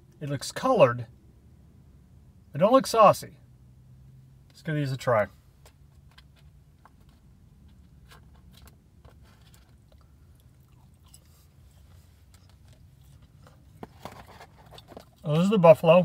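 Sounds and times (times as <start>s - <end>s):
person chewing crunchy food: 5.9s - 15.2s.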